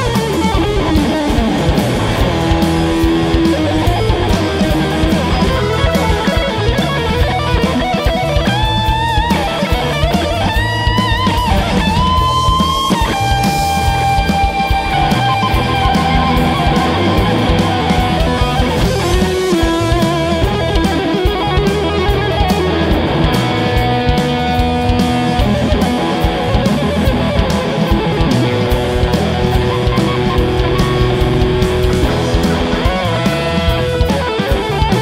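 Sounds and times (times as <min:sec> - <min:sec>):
bass: 0:00.0 - 0:35.0
drums with cymbals: 0:00.0 - 0:35.0
electric guitar lead notes: 0:00.0 - 0:35.0.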